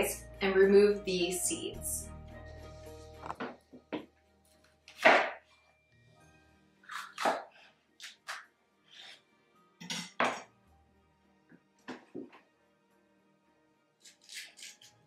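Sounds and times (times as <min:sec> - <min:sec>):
soft background music: 0:00.0 - 0:15.0
knife cutting on cutting board: 0:14.0 - 0:14.9.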